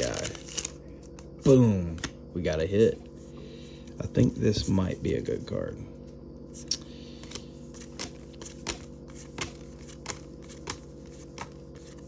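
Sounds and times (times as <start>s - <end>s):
cards being flipped: 0.0s - 1.3s, 6.5s - 12.0s
steady low hum: 0.0s - 12.0s.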